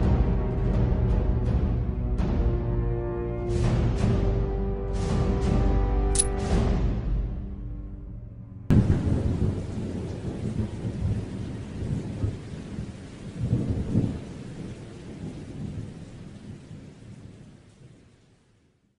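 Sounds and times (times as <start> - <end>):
rolling thunder: 8.7 - 18.0
rain hissing: 8.7 - 18.6.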